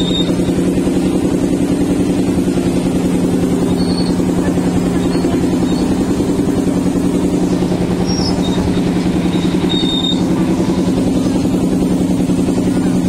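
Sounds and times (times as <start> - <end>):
faint high squeaks: 0.0 - 0.6, 3.6 - 6.3, 7.3 - 10.8
ride train motor droning: 0.0 - 13.0.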